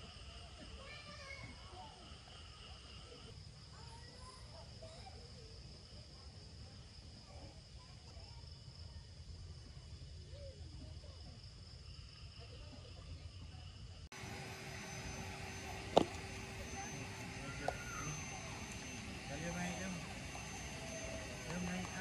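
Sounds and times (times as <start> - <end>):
crickets trilling: 0.0 - 22.0
low steady rumble: 13.2 - 22.0.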